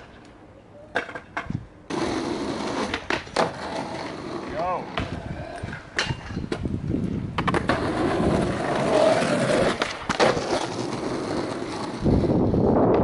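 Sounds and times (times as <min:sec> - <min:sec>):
skateboard wheels rolling on asphalt: 0:00.0 - 0:13.0
skateboard clacks: 0:00.9 - 0:04.3, 0:07.3 - 0:12.1.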